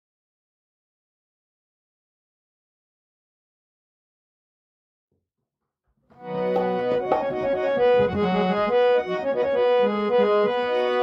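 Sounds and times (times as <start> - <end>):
reed instrument melody: 6.2 - 11.0.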